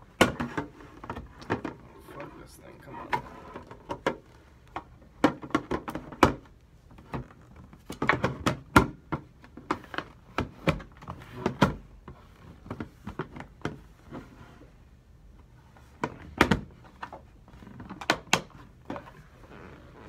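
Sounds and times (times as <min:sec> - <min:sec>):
objects knocking and clattering: 0:00.1 - 0:01.9, 0:03.1 - 0:13.9.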